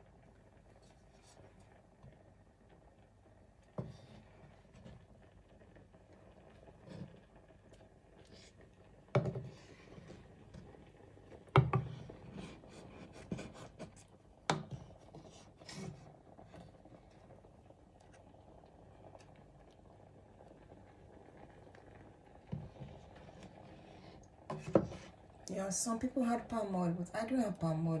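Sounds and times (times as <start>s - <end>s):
wooden spoon knocking on pot: 9.2s - 9.6s, 11.6s - 12.0s.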